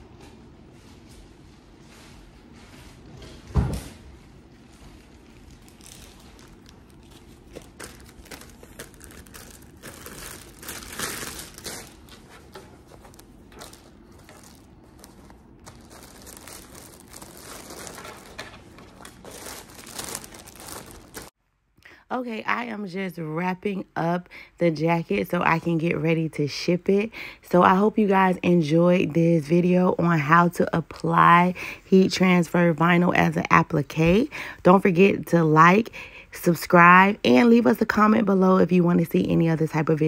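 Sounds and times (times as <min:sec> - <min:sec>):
plastic bag crinkling: 0:04.5 - 0:21.4.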